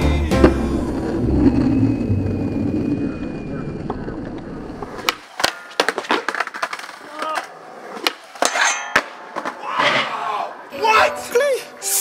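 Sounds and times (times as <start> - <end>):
skateboard wheels rolling on asphalt: 0.4 - 9.7
skateboard wooden clacks: 4.3 - 9.6
skateboard scraping metal handrail: 5.0 - 10.4.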